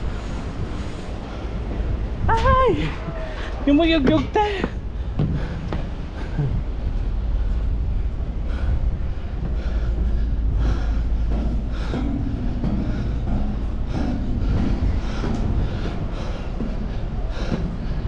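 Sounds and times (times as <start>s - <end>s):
footsteps on steel ladder and deck: 0.0s - 18.0s
steady low rumble: 0.0s - 18.0s.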